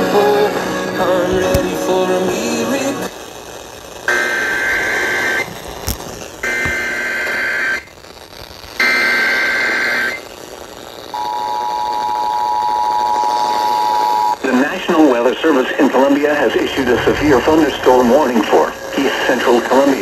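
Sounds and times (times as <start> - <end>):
warbling data bursts: 16.3 - 19.2.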